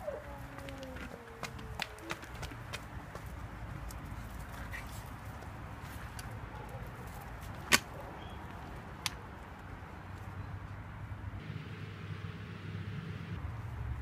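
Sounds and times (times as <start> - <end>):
outdoor background noise: 0.0 - 14.0
low hum: 11.3 - 14.0.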